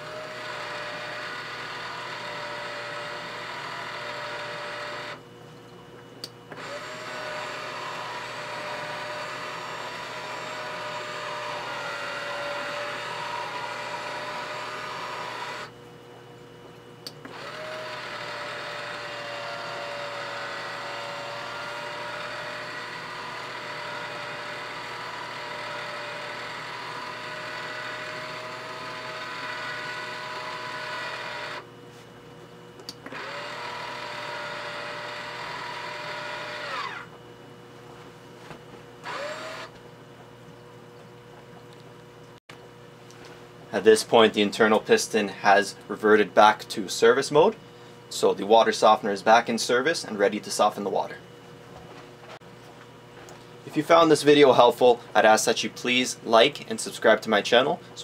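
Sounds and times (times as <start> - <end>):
valve drive motor whining: 0.0 - 5.2, 6.2 - 15.8, 17.0 - 31.8, 32.7 - 37.2, 39.0 - 39.8.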